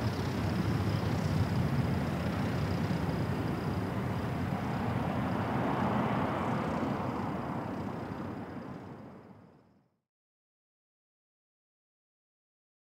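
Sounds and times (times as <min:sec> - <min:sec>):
jet engine roar and whine: 0:00.0 - 0:09.9.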